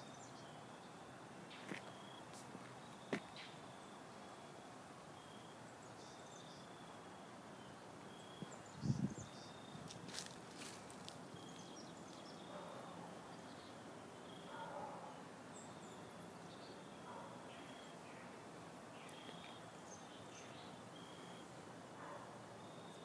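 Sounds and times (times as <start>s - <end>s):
birds chirping: 0.0s - 4.6s, 5.2s - 23.0s
insects chirping: 1.5s - 12.8s, 18.8s - 23.0s.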